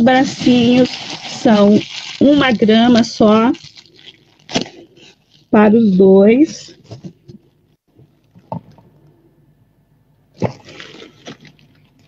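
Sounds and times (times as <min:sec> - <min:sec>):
rustling: 0:00.2 - 0:07.8.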